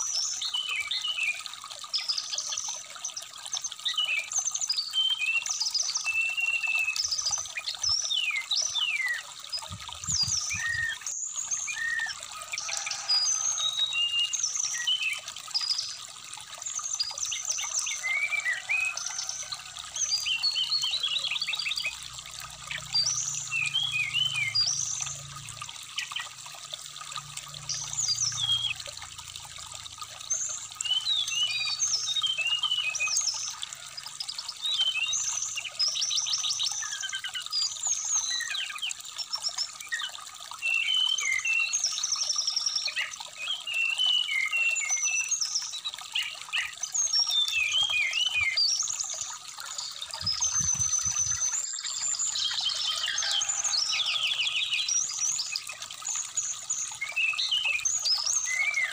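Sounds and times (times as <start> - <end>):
bird chirping and trilling: 0.0 - 25.2, 30.3 - 58.9
stream trickling: 0.0 - 58.9.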